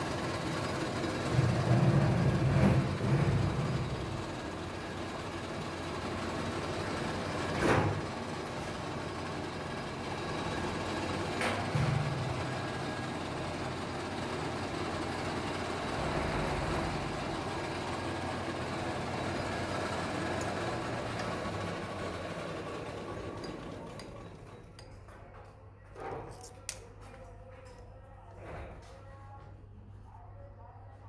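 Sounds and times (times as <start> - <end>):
metal lathe humming: 17.0 - 24.8.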